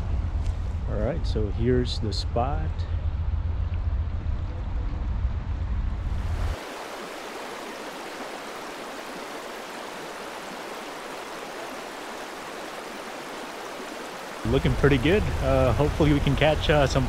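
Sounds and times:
low rumble: 0:00.0 - 0:06.6, 0:14.4 - 0:17.0
river water rushing over shallows: 0:06.1 - 0:17.0.

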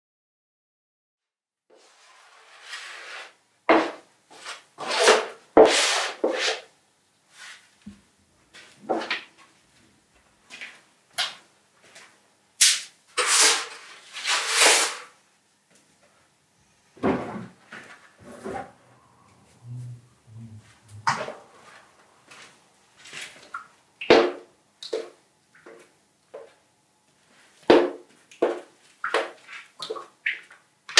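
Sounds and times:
rubbing and scraping strokes: 0:01.8 - 0:03.4, 0:04.3 - 0:06.7, 0:12.7 - 0:15.1.

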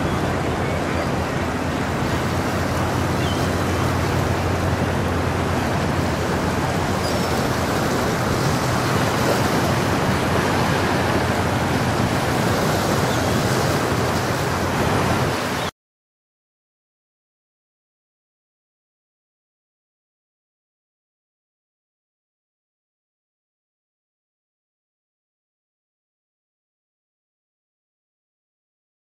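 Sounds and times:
low hum of ship: 0:00.0 - 0:15.7
water noise: 0:00.0 - 0:15.7
wind: 0:00.0 - 0:15.7.

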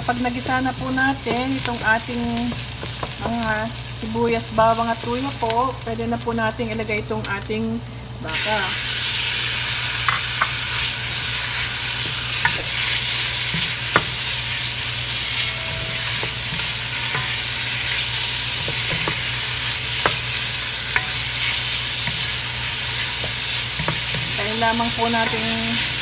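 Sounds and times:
meat sizzling in hot oil: 0:00.0 - 0:26.0.

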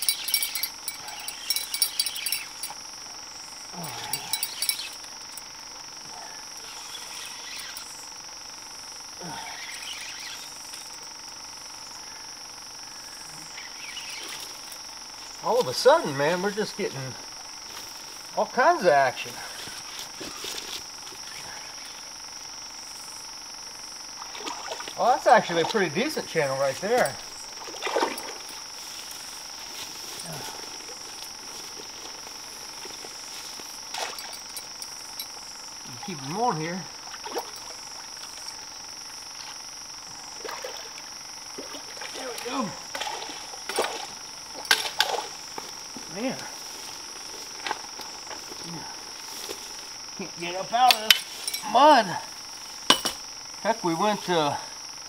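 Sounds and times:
night insects chorus: 0:00.0 - 0:55.0
faint ticks and rustles: 0:24.8 - 0:36.2.

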